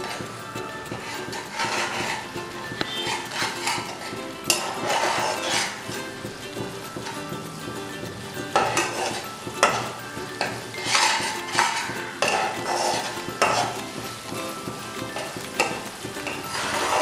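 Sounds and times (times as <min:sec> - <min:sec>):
sizzling in a pan: 0:00.0 - 0:05.9, 0:08.5 - 0:17.0
spatula scraping a pan: 0:00.9 - 0:05.9, 0:08.5 - 0:17.0.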